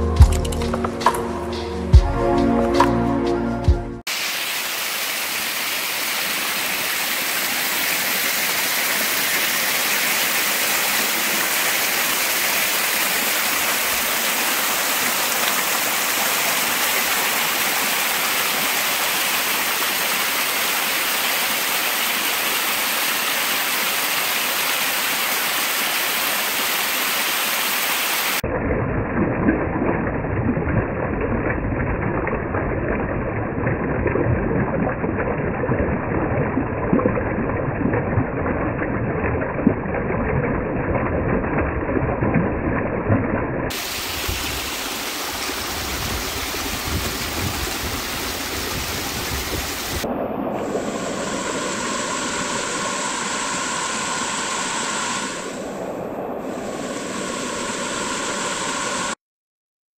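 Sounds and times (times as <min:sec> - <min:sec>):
waterfall rushing over rocks: 0:04.1 - 0:28.4, 0:43.7 - 0:55.8, 0:56.4 - 0:59.2.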